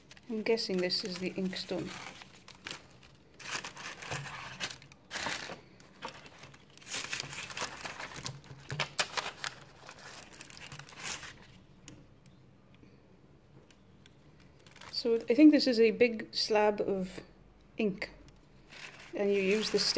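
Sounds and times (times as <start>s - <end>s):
paper and cardboard rustling: 0.0s - 11.5s, 18.7s - 19.9s.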